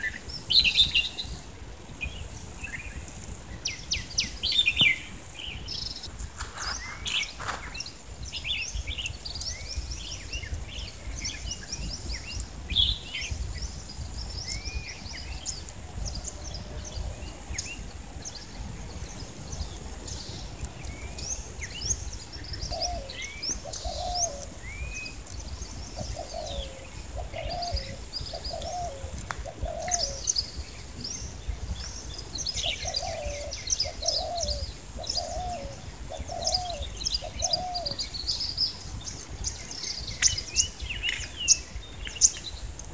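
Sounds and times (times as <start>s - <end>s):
birds chirping and calling: 2.0s - 18.5s, 19.1s - 42.9s
dove cooing: 22.7s - 24.5s, 26.0s - 30.2s, 32.7s - 38.0s.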